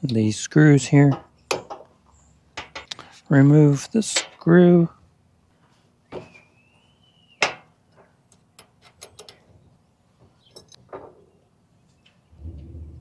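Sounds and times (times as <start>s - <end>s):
small metal clicks and ticks: 8.3s - 9.5s.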